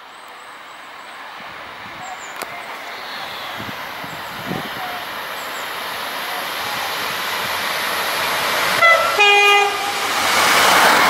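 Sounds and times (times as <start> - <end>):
train running noise: 0.0 - 11.0
two-tone train horn: 8.8 - 10.2.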